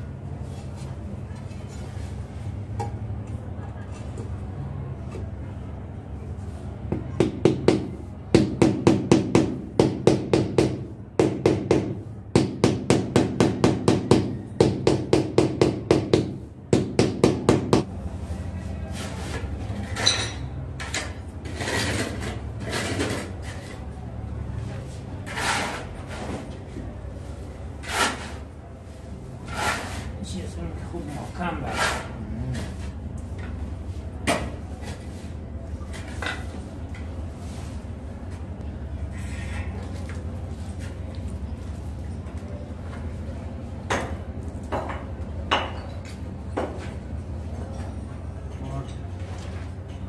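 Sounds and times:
mortar scraping: 20.8s - 23.9s, 24.9s - 26.5s, 27.8s - 28.5s, 29.4s - 30.2s, 31.0s - 33.0s.

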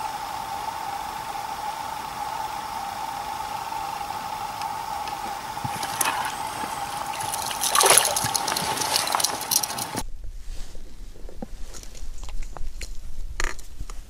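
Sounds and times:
faint steady whine: 0.0s - 14.0s
water splashing and trickling: 5.1s - 10.0s.

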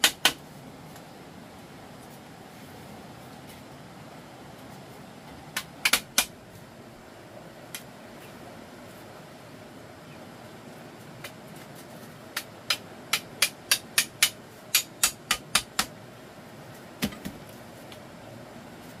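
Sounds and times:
hand tool striking: 12.4s - 15.9s.

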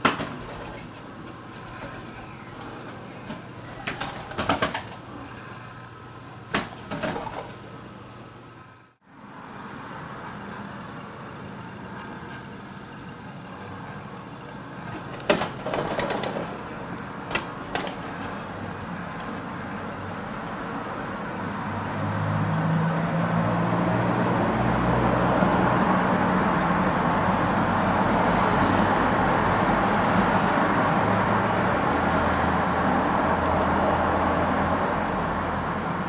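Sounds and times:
pigeon wing slaps: 0.0s - 5.1s, 6.5s - 7.7s, 14.9s - 16.7s, 17.3s - 20.8s.

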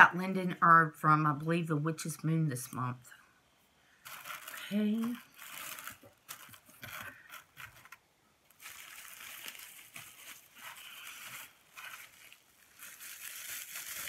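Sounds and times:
packaging rustling and crinkling: 4.0s - 14.0s.

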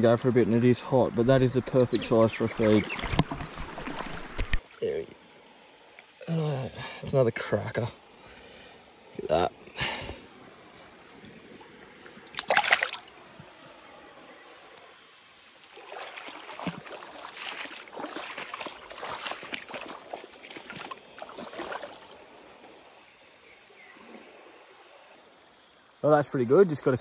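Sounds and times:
faint stream hiss: 0.0s - 27.0s
water splashing: 2.1s - 5.2s, 11.2s - 13.7s, 15.1s - 22.4s.

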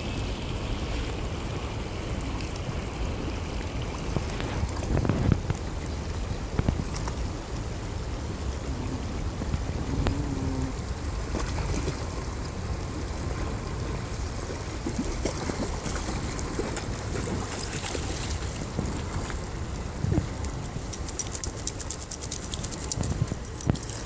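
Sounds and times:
river water running over stones: 0.0s - 24.0s
wind rumbling on microphone: 0.0s - 24.0s
dogs splashing through water: 11.1s - 19.7s.

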